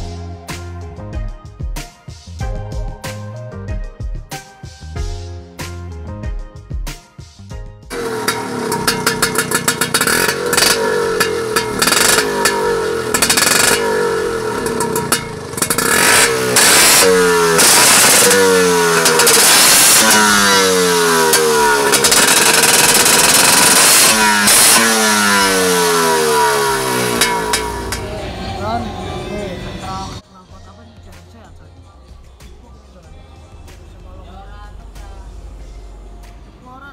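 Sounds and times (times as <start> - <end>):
scooter engine idling and revving: 0.0 - 1.8, 7.9 - 30.2.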